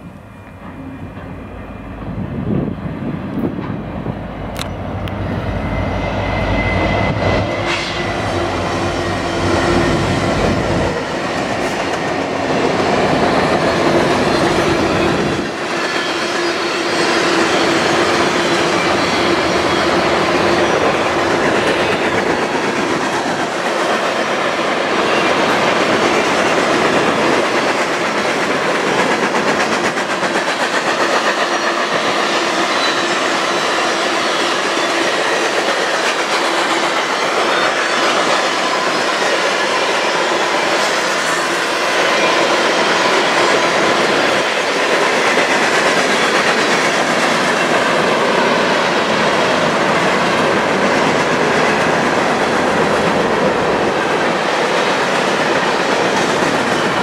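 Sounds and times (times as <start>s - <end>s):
diesel locomotive rumble: 0.0s - 15.8s
train wheels clattering over rail joints: 7.5s - 57.0s.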